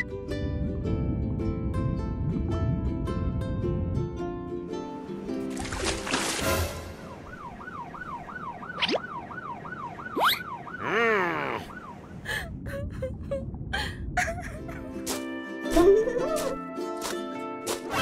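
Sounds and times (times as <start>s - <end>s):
cartoon police siren warbling: 7.1s - 12.2s.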